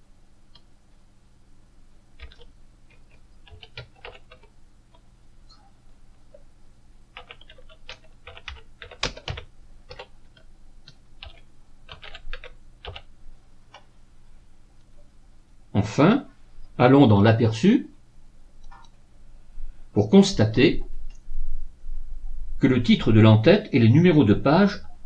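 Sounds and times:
computer keyboard typing: 0:02.2 - 0:05.0, 0:07.1 - 0:13.1.

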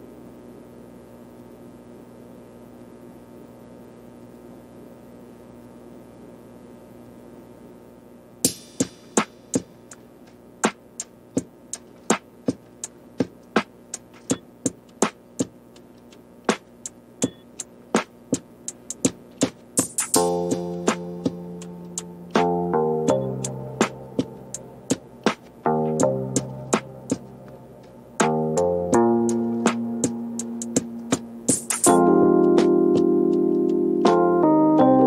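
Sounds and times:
faint steady hum: 0:00.0 - 0:35.0
electronic percussion clicks: 0:11.4 - 0:32.7.

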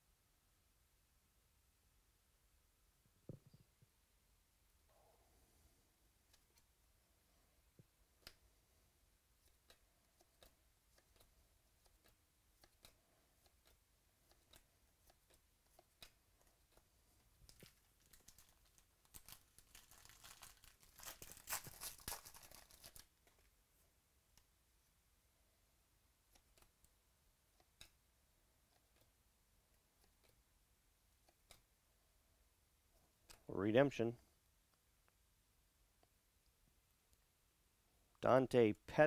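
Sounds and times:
wrapper tearing open: 0:17.6 - 0:23.1.

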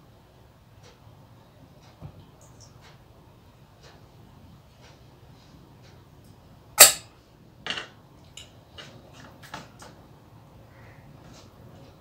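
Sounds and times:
metal bowl clinking: 0:06.8 - 0:07.1.

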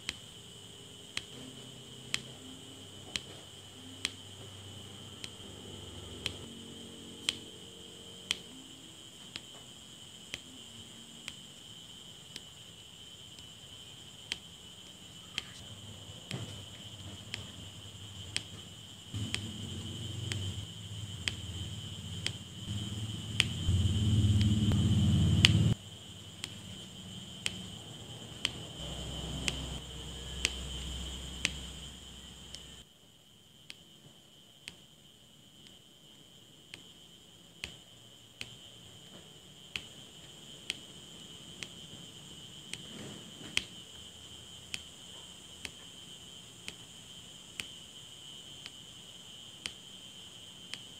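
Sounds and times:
soft low hum: 0:00.0 - 0:32.8
drill pen tapping clicks: 0:19.2 - 0:19.7, 0:22.2 - 0:23.7
loud low rumble: 0:19.2 - 0:25.8.

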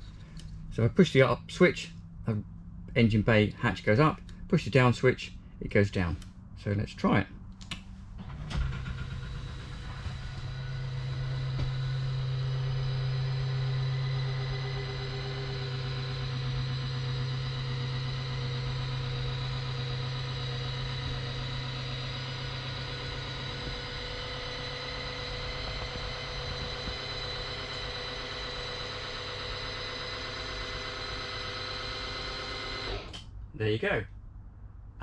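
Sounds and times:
electric motor humming and whining: 0:08.2 - 0:33.2.

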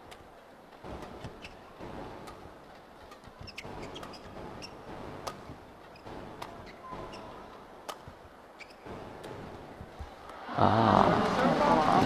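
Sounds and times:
shoes squeaking on court: 0:01.1 - 0:02.4, 0:03.0 - 0:10.0
racket striking shuttlecock: 0:06.4 - 0:08.2
arena murmur: 0:10.4 - 0:12.0.

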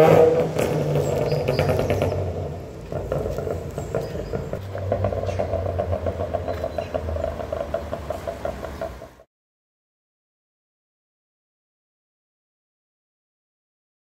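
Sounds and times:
car engine and exhaust driving away: 0:00.0 - 0:09.3.

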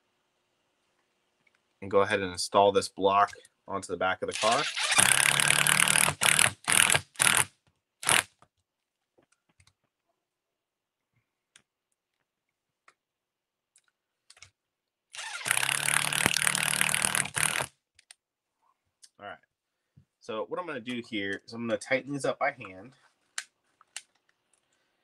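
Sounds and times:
electric screwdriver whirring: 0:04.4 - 0:08.3, 0:15.2 - 0:17.7
clicks of small parts handled: 0:13.8 - 0:14.6.

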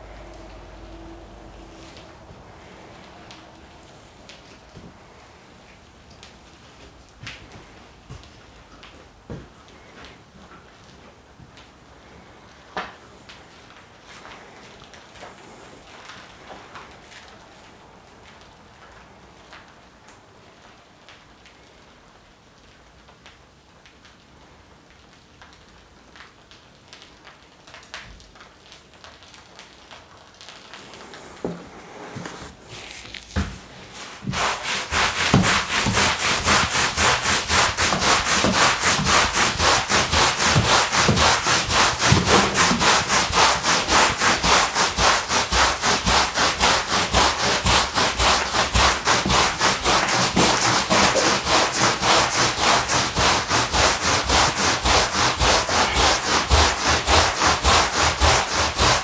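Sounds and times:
squeegee scraping wet rug: 0:30.6 - 0:59.0.

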